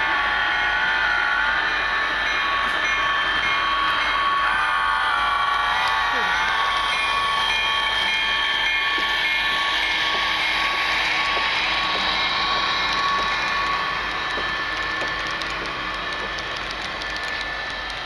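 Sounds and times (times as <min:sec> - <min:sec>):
model train wheels rattling: 0:09.9 - 0:18.0.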